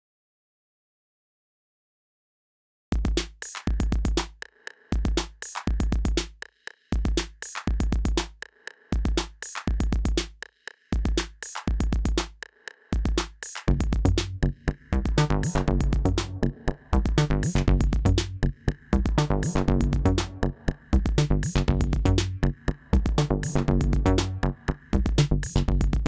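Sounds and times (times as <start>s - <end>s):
kick drum thumps: 2.9s - 14.4s
hi-hat ticks: 3.1s - 13.8s
synth bass line: 13.7s - 26.0s.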